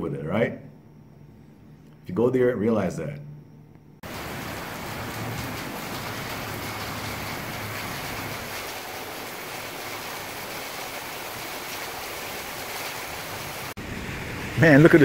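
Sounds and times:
rain on rooftops and street: 4.0s - 15.0s
vehicle engine hum: 13.8s - 15.0s.

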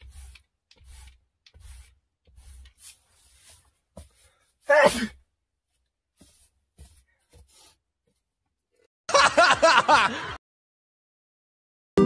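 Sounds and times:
person's short vocal outburst: 4.7s - 5.2s.

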